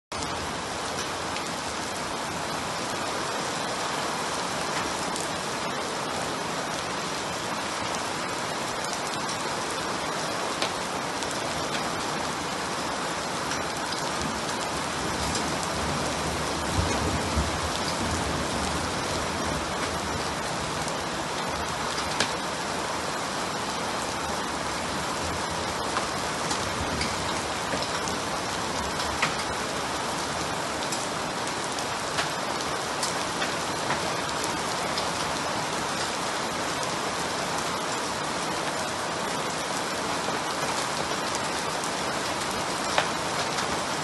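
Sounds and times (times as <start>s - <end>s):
steady rain falling: 0.1s - 44.0s
rain drop clicks: 21.9s - 22.4s, 25.8s - 28.2s, 28.8s - 29.6s, 30.8s - 35.4s, 42.8s - 43.8s.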